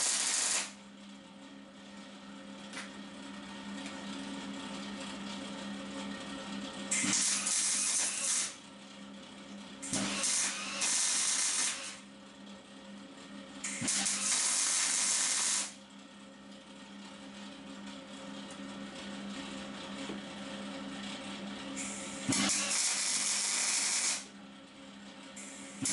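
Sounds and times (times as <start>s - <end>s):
welder hissing: 0.0s - 0.7s, 7.1s - 8.5s, 10.0s - 11.9s, 21.8s - 24.2s.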